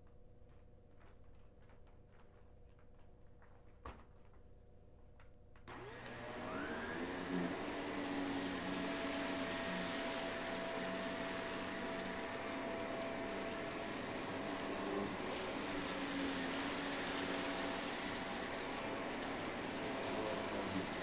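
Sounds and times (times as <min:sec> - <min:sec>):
vacuum cleaner motor running: 0:05.7 - 0:21.0.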